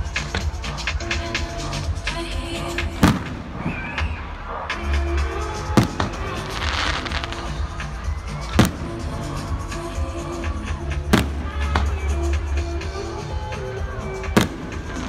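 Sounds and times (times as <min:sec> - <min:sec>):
loud music with heavy bass: 0:00.0 - 0:15.0
fireworks bangs: 0:03.0 - 0:04.6, 0:05.6 - 0:09.6, 0:11.1 - 0:12.1, 0:14.3 - 0:15.0.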